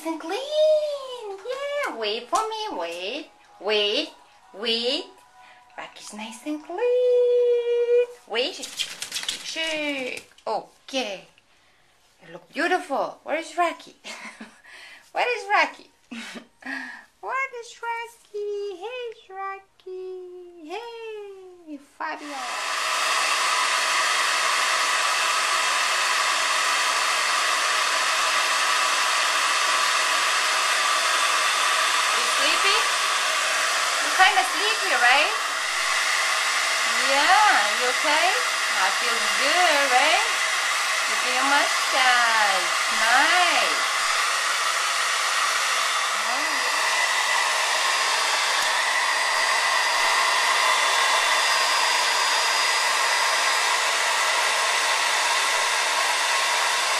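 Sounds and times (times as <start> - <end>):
hair dryer blowing: 0.0 - 5.1, 7.2 - 10.3, 22.1 - 56.9.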